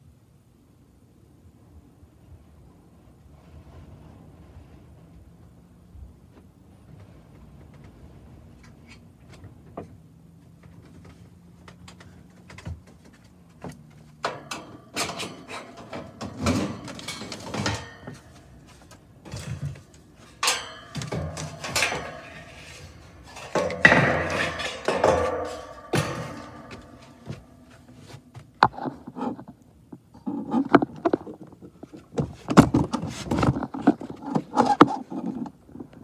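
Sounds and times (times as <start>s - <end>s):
metal panel clanking and rattling: 10.7s - 29.4s.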